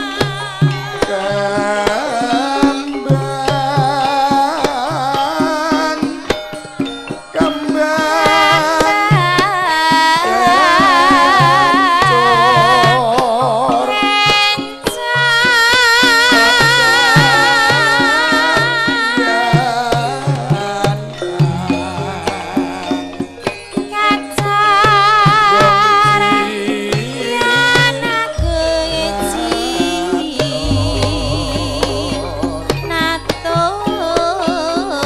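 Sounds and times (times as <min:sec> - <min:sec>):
person singing with vibrato: 0:00.0 - 0:35.0
sustained metallophone tones: 0:00.0 - 0:35.0
hand drum strokes: 0:23.4 - 0:35.0.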